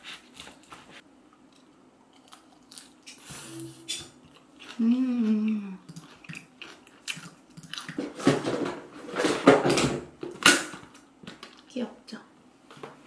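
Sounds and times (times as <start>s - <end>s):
person humming: 3.3s - 4.2s.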